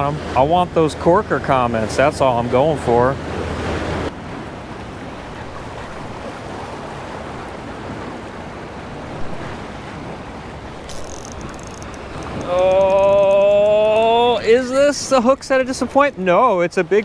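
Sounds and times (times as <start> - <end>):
sea water washing against rocks: 3.4 - 17.0
fine ticks: 10.9 - 14.1.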